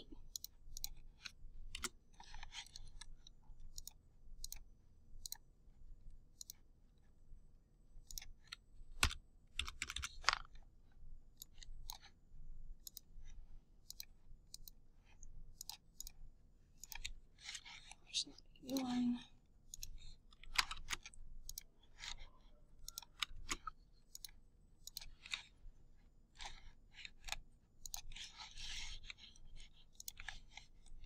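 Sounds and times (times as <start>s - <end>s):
mouse and keyboard clicks: 0.1s - 5.5s, 6.4s - 6.6s, 8.0s - 10.6s, 11.4s - 12.1s, 12.8s - 13.1s, 13.8s - 16.2s, 16.8s - 18.9s, 19.7s - 25.6s, 26.4s - 31.0s.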